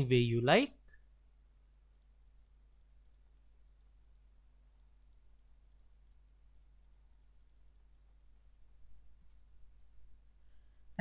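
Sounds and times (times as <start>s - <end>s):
low recording hum: 0.0s - 11.0s
faint ticks: 0.8s - 8.4s.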